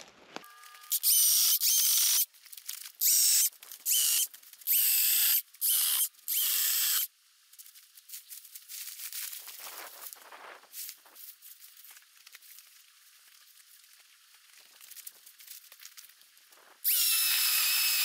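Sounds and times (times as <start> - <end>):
branches crackling and rustling: 2.2 - 4.7, 7.4 - 16.8
electric chainsaw cutting in bursts: 3.0 - 7.1, 16.8 - 18.0.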